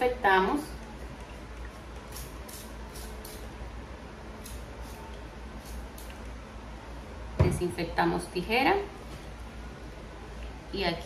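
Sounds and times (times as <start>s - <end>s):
spray bottle squirting: 2.0s - 3.5s.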